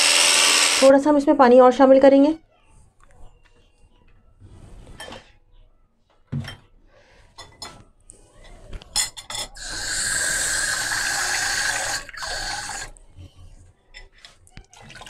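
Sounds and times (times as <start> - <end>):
dishes clinking: 4.9 - 5.3, 6.3 - 6.7, 7.3 - 9.8
water pouring into steel pot: 9.6 - 12.9.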